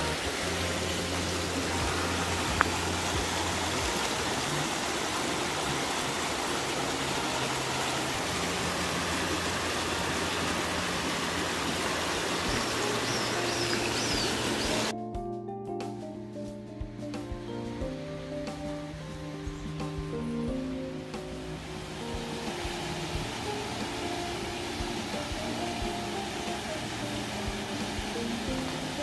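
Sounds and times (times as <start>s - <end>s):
stream rushing over rocks: 0.0s - 14.9s, 20.9s - 29.0s.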